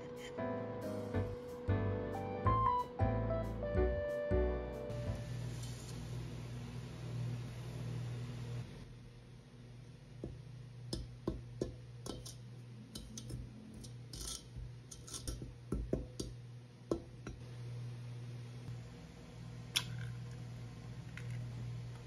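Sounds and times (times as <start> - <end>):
low hum: 0.0 - 11.2
dough hook tapping metal bowl: 10.2 - 12.4, 13.0 - 17.4.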